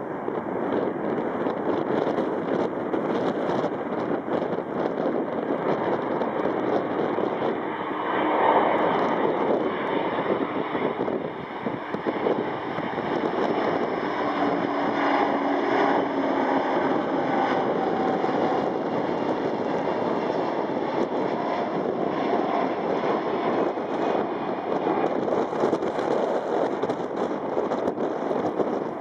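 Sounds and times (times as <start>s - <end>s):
jet aircraft flying past: 0.0s - 29.0s.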